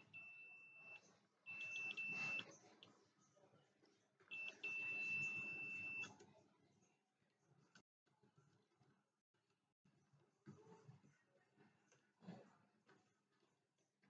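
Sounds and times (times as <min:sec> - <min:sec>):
multimeter high-pitched beep: 0:00.0 - 0:02.4, 0:04.3 - 0:06.1.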